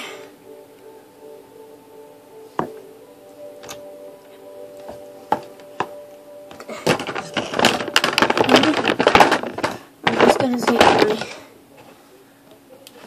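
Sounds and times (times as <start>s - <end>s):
rustling and clattering of small items: 4.8s - 12.0s.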